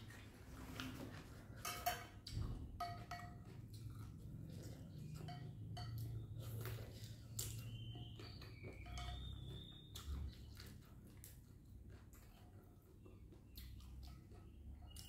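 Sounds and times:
utensils clinking on glass bowl: 1.6 - 2.2, 2.8 - 6.8, 7.5 - 9.6.

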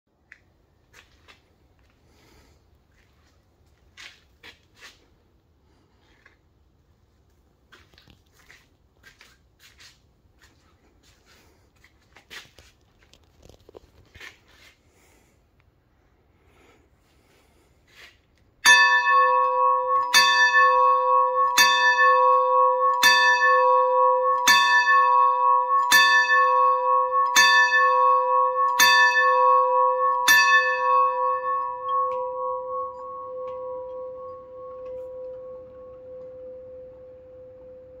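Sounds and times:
steam locomotive bell ringing: 18.6 - 38.0.

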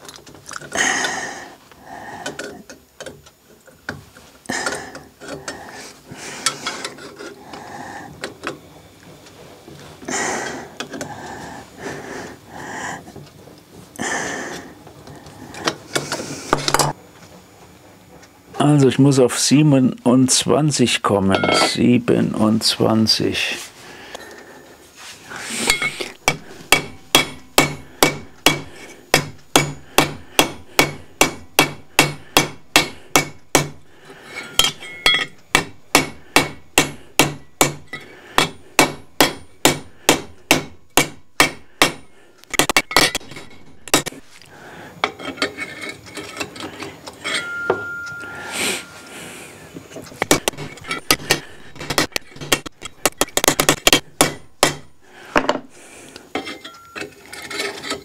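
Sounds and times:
hammer striking steel tube: 25.7 - 33.8, 34.5 - 44.2, 47.3 - 48.2, 53.5 - 55.5.

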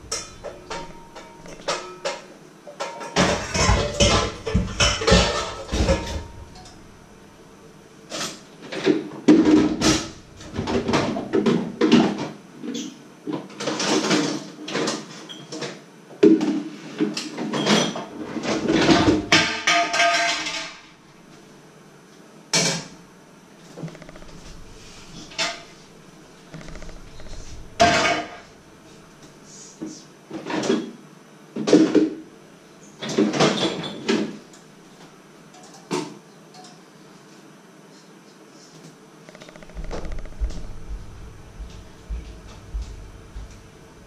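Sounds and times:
dishes and pots clattering in sink: 0.0 - 6.8, 8.2 - 20.9, 26.9 - 28.5, 33.0 - 34.4.

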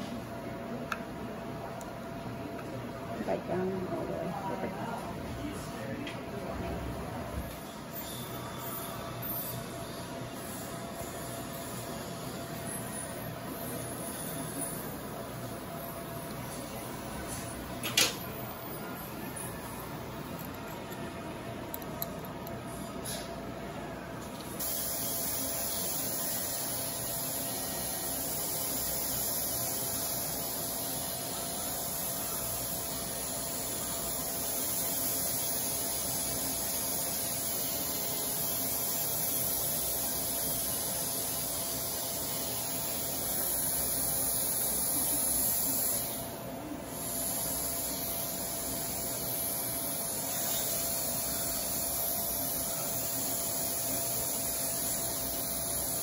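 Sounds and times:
dental handpiece grinding hiss: 24.6 - 46.3, 46.9 - 56.0.

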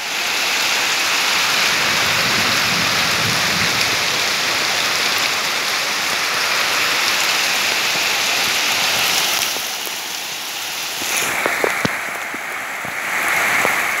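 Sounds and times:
heavy rain falling: 0.0 - 14.0
rainwater pouring into a barrel: 0.0 - 14.0
sharp water drips: 3.7 - 14.0.

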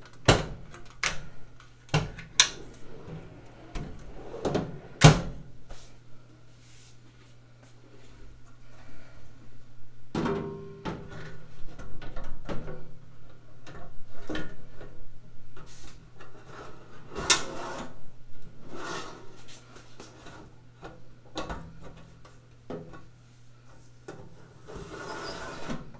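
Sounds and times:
metal drawer sliding on rails: 2.4 - 5.4, 15.7 - 18.0, 18.6 - 19.3, 24.6 - 25.9.

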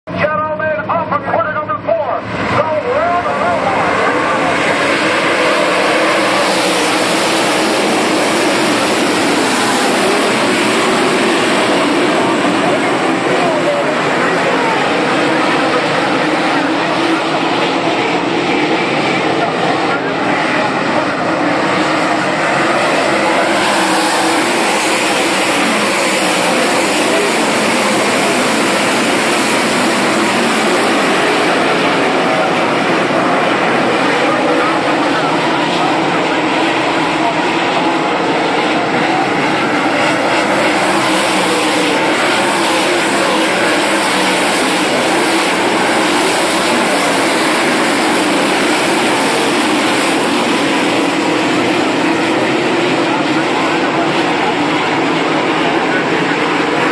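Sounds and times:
race car engines: 0.0 - 56.9.

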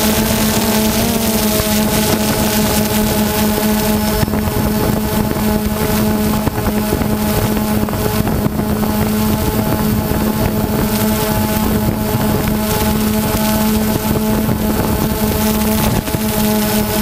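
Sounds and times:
drone motors and propellers: 0.0 - 17.0
wind noise on microphone: 0.0 - 17.0.

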